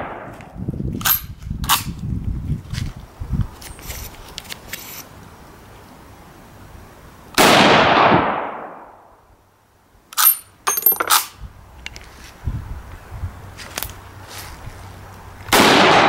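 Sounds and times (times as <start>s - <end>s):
rifle shot: 7.4s - 8.9s, 15.5s - 16.0s
metal ringing clink: 10.2s - 11.3s
rifle bolt clacking: 10.2s - 11.3s.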